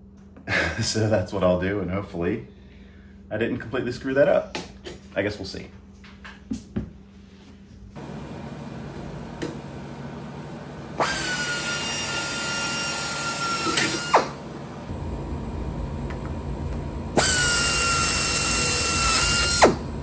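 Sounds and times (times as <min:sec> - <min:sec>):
pneumatic drill whining: 0:11.0 - 0:14.4, 0:17.2 - 0:19.9.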